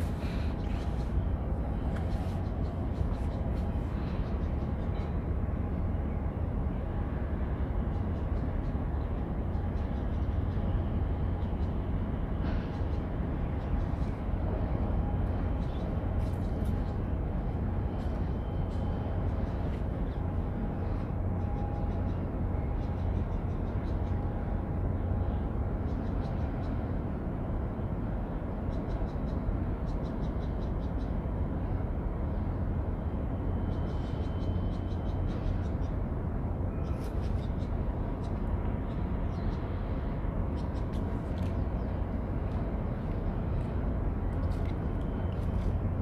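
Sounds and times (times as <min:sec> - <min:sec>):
faint constant hum: 0:00.0 - 0:46.0
low rumble of harbour ambience: 0:00.0 - 0:46.0.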